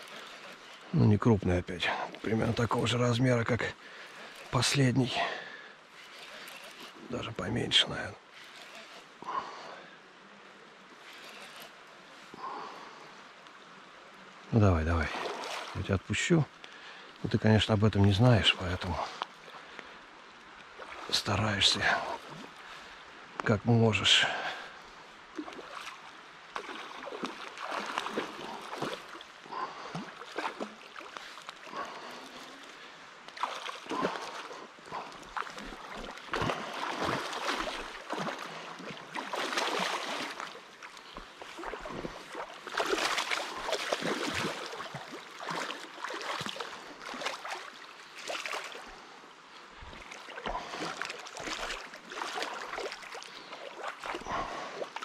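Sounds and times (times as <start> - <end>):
river current rushing: 0.0 - 55.0
fish thrashing and splashing: 25.4 - 32.4, 33.3 - 48.9.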